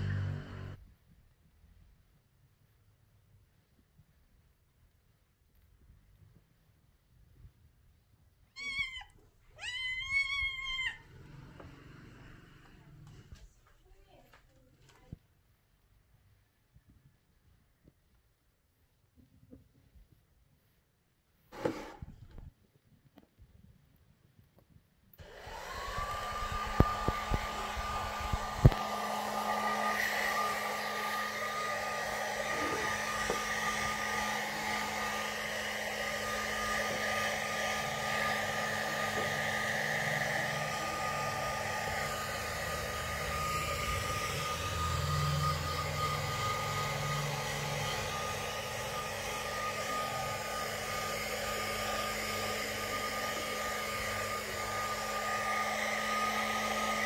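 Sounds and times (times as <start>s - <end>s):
hair dryer blowing: 0.0s - 0.8s, 9.6s - 13.4s, 21.5s - 22.4s, 25.2s - 57.0s.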